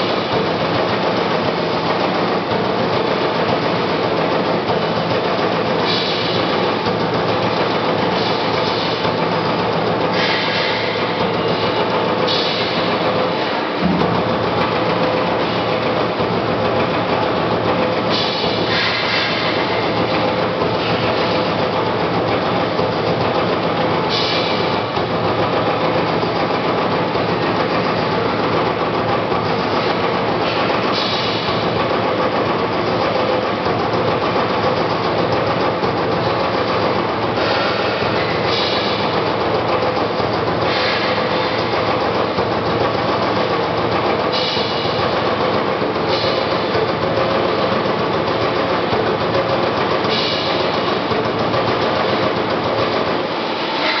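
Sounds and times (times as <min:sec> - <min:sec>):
punch press hitting sheet metal: 0:53.5 - 0:54.0.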